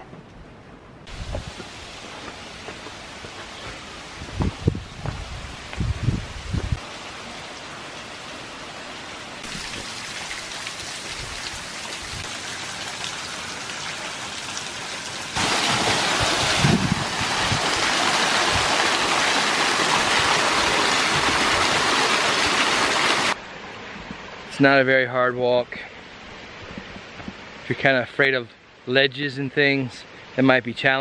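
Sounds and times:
small waterfall rushing: 6.8s - 23.4s
thin streams pattering down rock: 9.4s - 23.4s.

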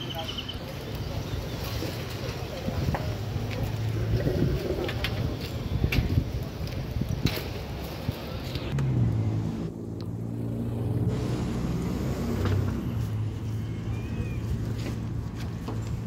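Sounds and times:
vehicle engine humming: 7.6s - 16.0s.

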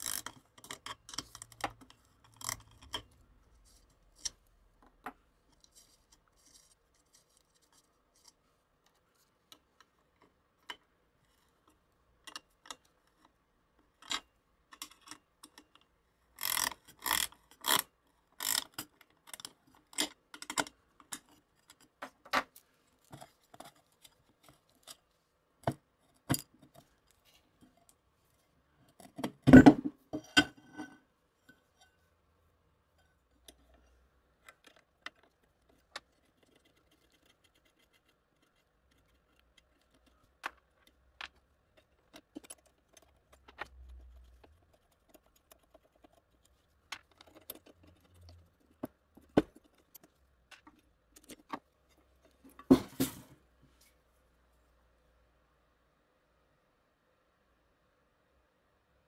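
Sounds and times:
ratcheting wrench clicking: 0.0s - 1.6s, 16.4s - 17.8s.

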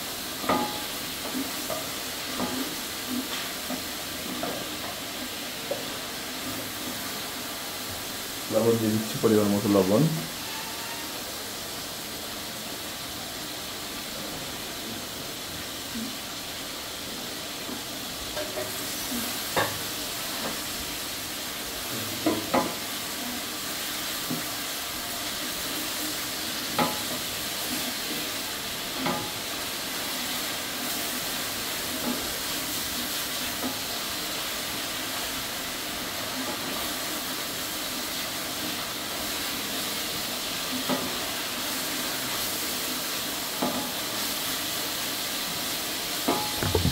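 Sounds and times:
steady hiss: 0.0s - 46.9s
spatula knocking on metal pot: 46.3s - 46.9s.

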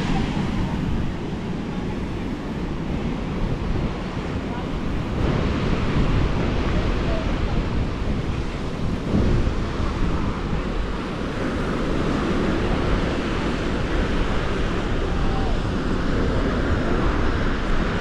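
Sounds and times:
ocean surf breaking: 0.0s - 18.0s
wind buffeting microphone: 0.0s - 18.0s.

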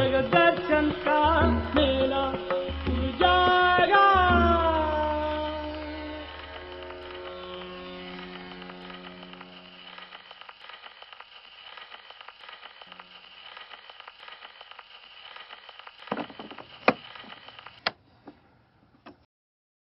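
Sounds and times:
record crackle: 5.3s - 17.9s
loud pops: 5.6s - 17.9s.

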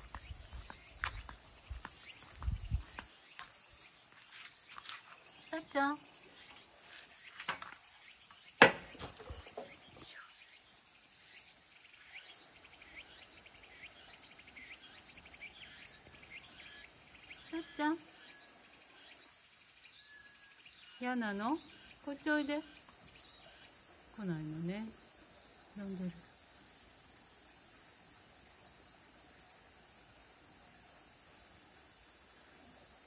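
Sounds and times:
insects chirring: 0.0s - 33.0s
sharp knock: 8.6s - 9.7s.

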